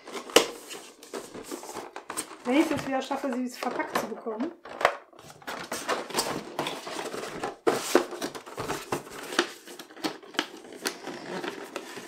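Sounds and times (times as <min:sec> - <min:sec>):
plastic bag rustling: 0:00.0 - 0:03.5, 0:04.6 - 0:10.0.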